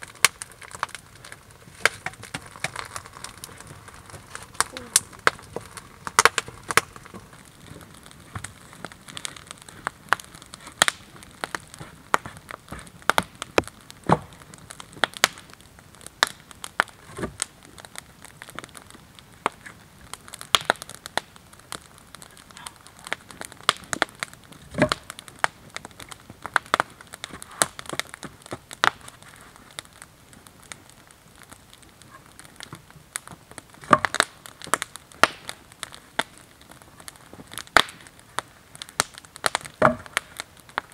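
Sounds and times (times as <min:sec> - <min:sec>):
wooden logs knocking: 0:01.8 - 0:08.5, 0:24.7 - 0:25.0, 0:39.6 - 0:40.2.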